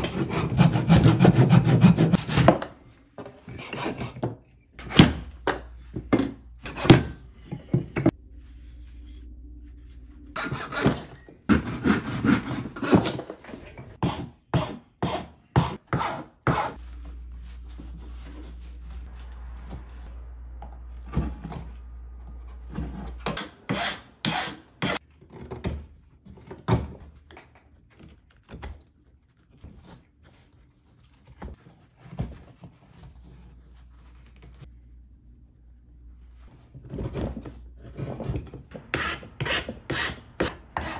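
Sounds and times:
carving knife scraping wood: 0:00.0 - 0:02.6, 0:10.4 - 0:13.1, 0:38.8 - 0:40.9.

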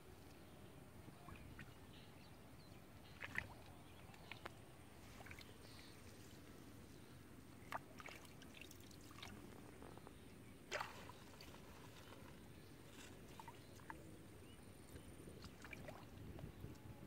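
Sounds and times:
sharp splash: 0:10.7 - 0:11.4.

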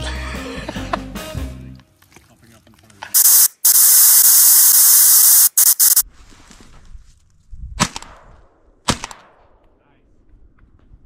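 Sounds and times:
loud steady hiss: 0:03.2 - 0:06.0
shotgun shot: 0:07.8 - 0:09.4.

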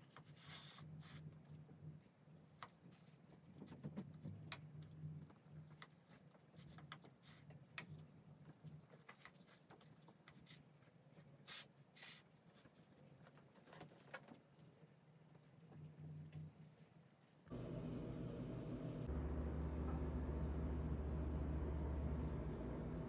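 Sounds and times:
low steady hum: 0:15.6 - 0:23.0.

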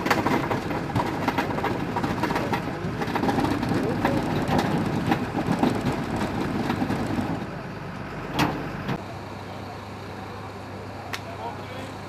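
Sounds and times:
metal clanks and rattles: 0:00.0 - 0:07.5
truck engine rumble: 0:00.0 - 0:12.0.

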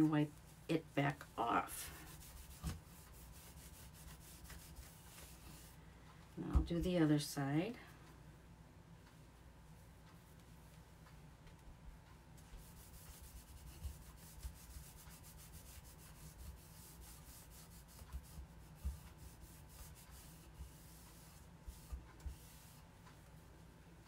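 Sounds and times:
cloth rubbing on wood: 0:00.0 - 0:05.8, 0:12.4 - 0:23.4
soft bumps on work surface: 0:18.1 - 0:19.1.

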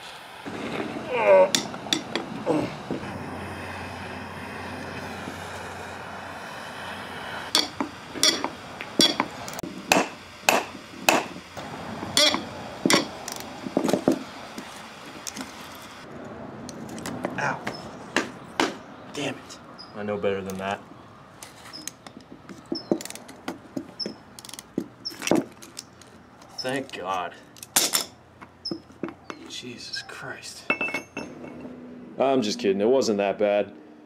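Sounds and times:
sharp metal knocks and clicks: 0:01.5 - 0:02.3, 0:07.5 - 0:11.4, 0:12.1 - 0:14.2, 0:16.7 - 0:18.8, 0:21.8 - 0:26.0
metal creak under load: 0:12.2 - 0:13.5.

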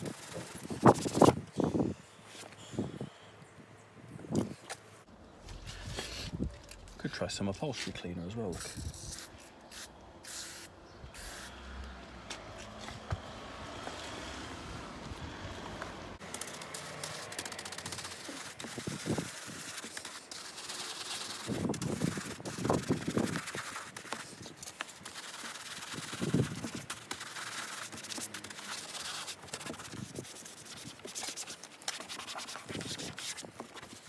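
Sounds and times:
bristle brush scrubbing plastic: 0:16.2 - 0:34.0.

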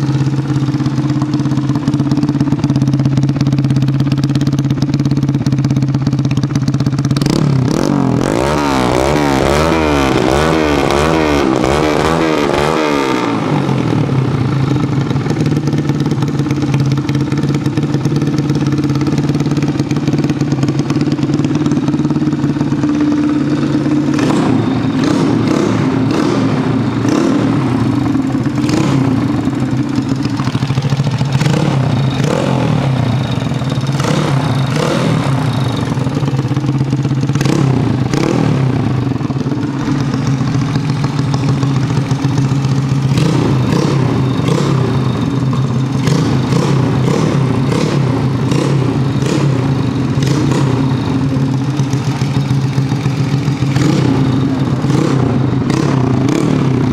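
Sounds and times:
motorcycle engine revving: 0:00.0 - 0:56.9
sharp clicks and clatter: 0:27.0 - 0:56.5.

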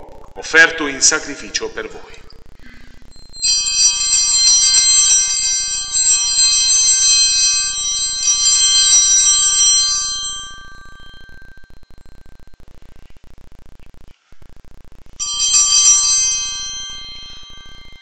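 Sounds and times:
small bells ringing: 0:02.7 - 0:12.6, 0:15.2 - 0:18.0.

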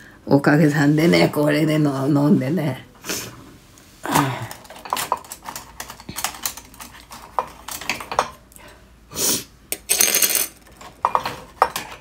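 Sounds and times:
kitchen things clinking: 0:04.2 - 0:08.5, 0:09.7 - 0:12.0.

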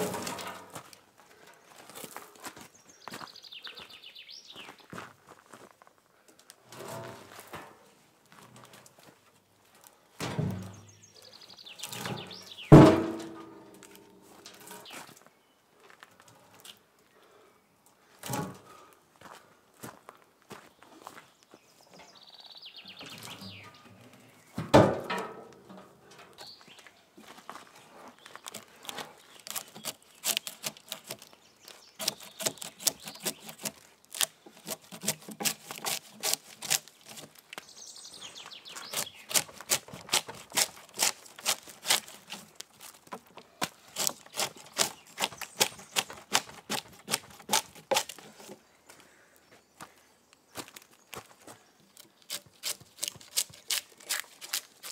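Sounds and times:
heavy thump: 0:10.2 - 0:10.8, 0:12.7 - 0:13.6
blade stripping bark from log: 0:11.8 - 0:14.8, 0:28.5 - 0:37.6, 0:38.8 - 0:48.6, 0:51.9 - 0:54.9.

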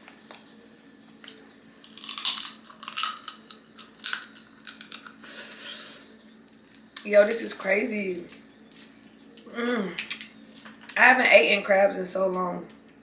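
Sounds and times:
close-up eating sounds: 0:01.2 - 0:07.0
crab shells cracking: 0:01.8 - 0:05.2.

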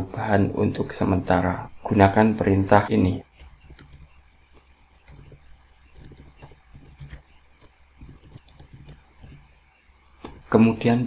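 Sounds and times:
computer keyboard typing: 0:03.2 - 0:09.5.

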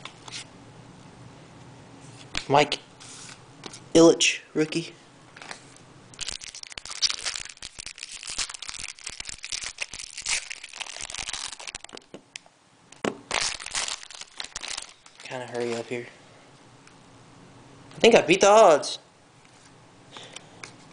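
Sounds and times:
foil wrapper crinkling: 0:06.2 - 0:12.1, 0:13.3 - 0:15.9.

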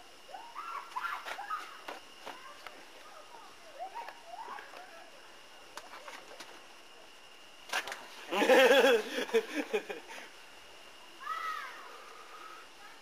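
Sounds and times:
man laughing heartily: 0:08.3 - 0:10.3.

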